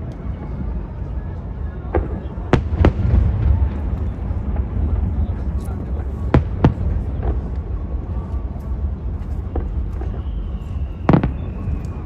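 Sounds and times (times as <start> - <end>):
fireworks bangs: 1.8 - 8.1, 8.8 - 12.0.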